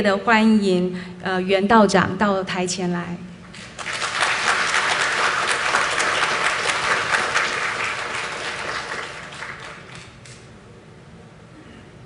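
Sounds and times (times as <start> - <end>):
audience applauding: 3.6 - 10.4.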